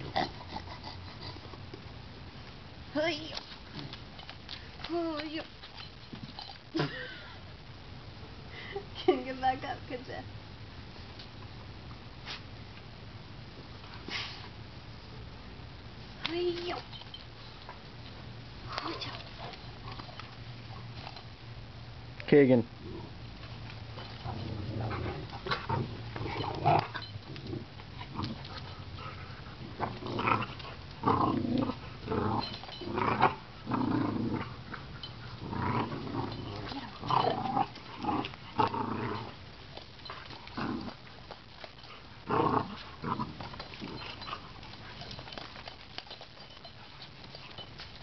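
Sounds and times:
dogs growling: 0.0s - 1.8s, 22.8s - 48.0s.

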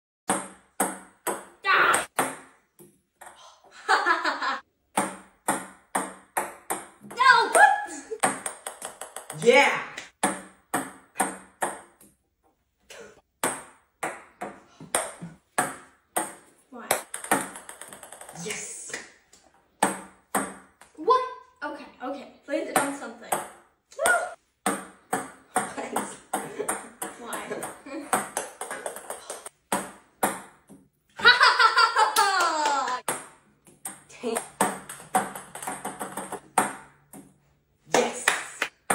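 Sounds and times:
ping-pong balls bouncing on wood: 0.3s - 3.4s, 4.9s - 12.2s, 13.3s - 18.4s, 19.7s - 21.0s, 22.7s - 31.0s, 32.9s - 38.0s
girl screaming excitedly: 7.2s - 8.2s, 32.0s - 33.0s.

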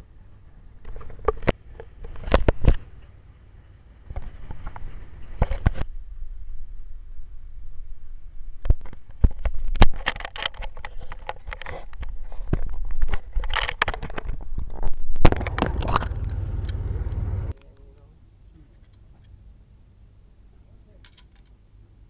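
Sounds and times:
camera handling clicks and scrapes: 4.1s - 5.9s, 8.7s - 16.8s
low rumble: 5.0s - 8.6s, 14.4s - 17.5s.

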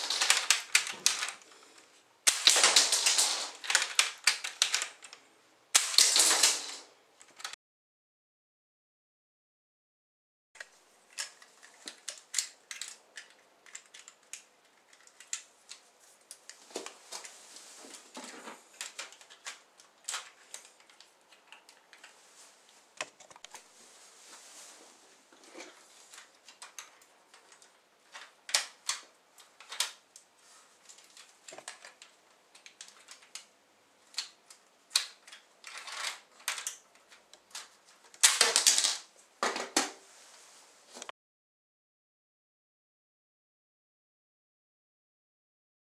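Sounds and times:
plastic bricks clicking and rattling: 0.0s - 1.6s, 2.2s - 7.5s, 10.6s - 16.5s, 18.2s - 22.1s, 26.1s - 30.1s, 30.9s - 39.8s.

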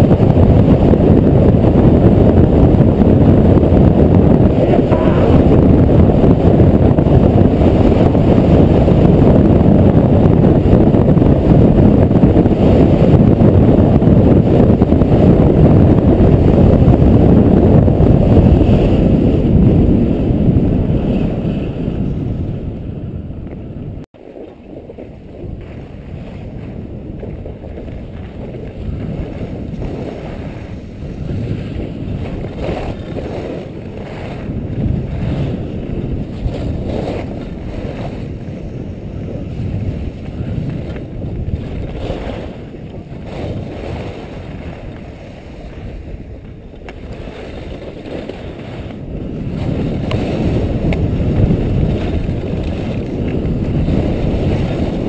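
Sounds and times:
wind on microphone: 0.0s - 55.0s
skis scraping on snow: 27.3s - 40.9s, 41.6s - 55.0s.

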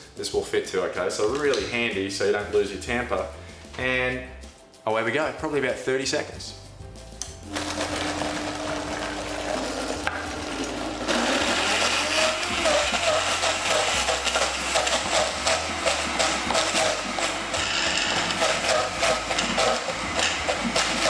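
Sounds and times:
blender motor running: 7.5s - 21.0s.

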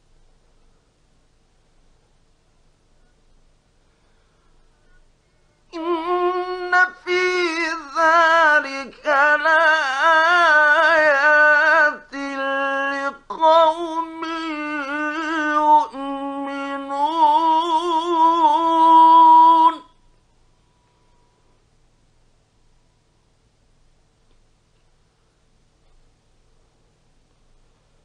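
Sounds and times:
man reciting melodically: 5.7s - 20.0s.

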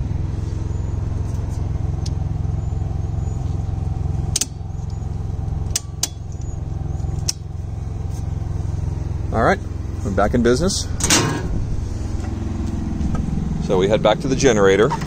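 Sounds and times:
generator engine hum: 0.0s - 15.0s
circuit breakers clicking: 5.7s - 6.4s.

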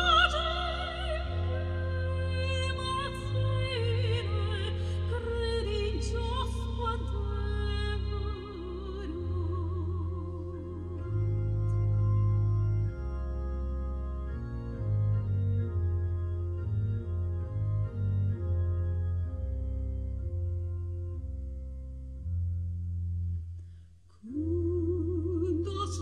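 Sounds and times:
organ pedal bass line: 0.0s - 23.8s
organ playing chords: 0.0s - 23.8s.

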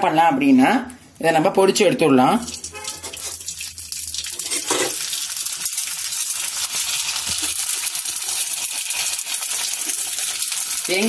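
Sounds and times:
food sizzling in hot oil: 2.5s - 11.0s.

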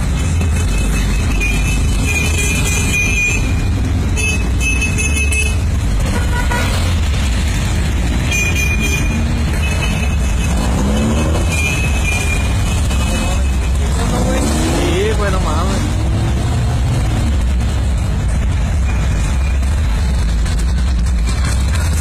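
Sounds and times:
car engines passing: 0.0s - 22.0s
car horn toots: 0.7s - 6.9s, 8.2s - 13.6s
engine revving: 5.5s - 22.0s.

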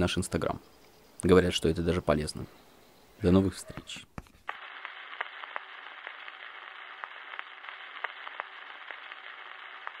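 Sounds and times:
crackles and pops: 4.1s - 10.0s
static hiss: 4.2s - 10.0s.

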